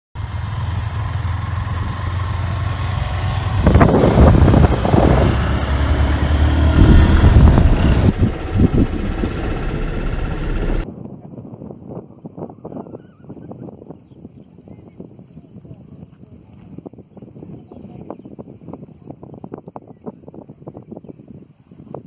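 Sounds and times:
motorcycle engines humming: 0.2 - 10.9
gusty rushing noise: 1.6 - 10.9.

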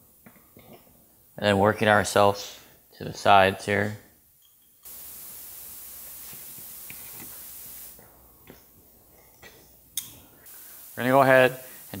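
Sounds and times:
steady hiss: 4.8 - 12.0.

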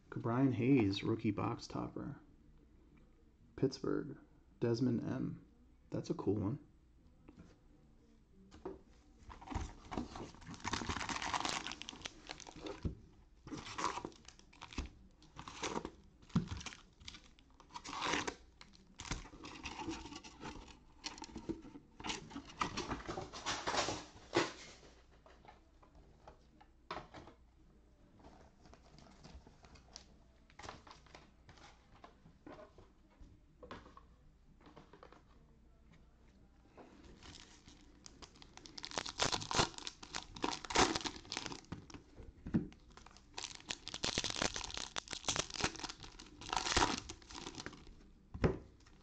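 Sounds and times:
foil packs crinkling: 9.5 - 12.9, 13.5 - 21.4, 37.2 - 41.9, 42.7 - 47.9
cardboard box tearing: 10.2 - 12.6, 38.8 - 41.6.

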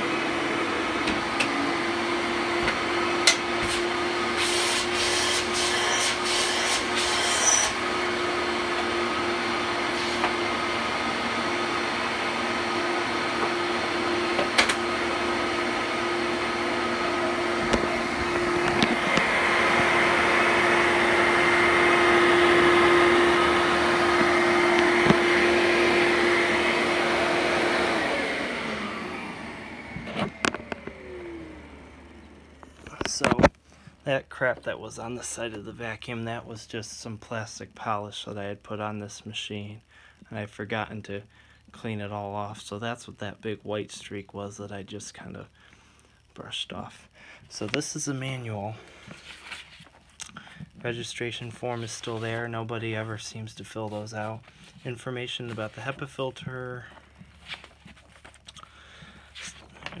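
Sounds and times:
vacuum cleaner motor whine: 0.0 - 33.5
vacuum cleaner clicks: 14.3 - 15.0, 16.9 - 20.7, 23.3 - 33.6.

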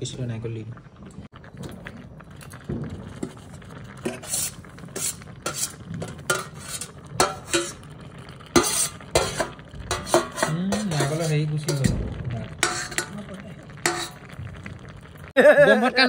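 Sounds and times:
spoon stirring and scraping pot: 2.3 - 14.7
spoon clinking against pot: 5.5 - 7.8, 8.6 - 12.0, 12.6 - 13.2, 13.8 - 14.3.

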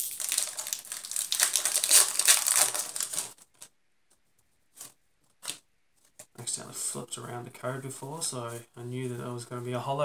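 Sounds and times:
foil wrapper crinkling: 0.0 - 3.7.

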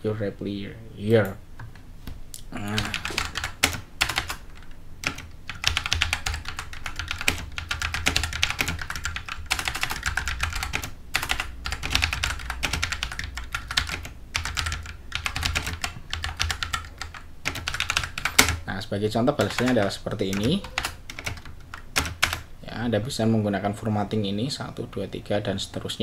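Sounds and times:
steady low hum: 0.0 - 26.0
fast typing on keyboard: 2.7 - 18.6, 19.3 - 22.4.

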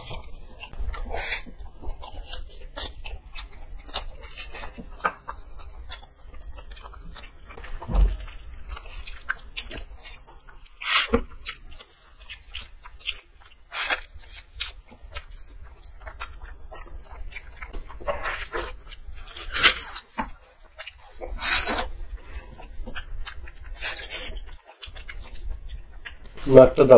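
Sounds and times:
chewing and slurping: 0.0 - 26.9
wet mouth clicks and smacks: 22.7 - 26.4.

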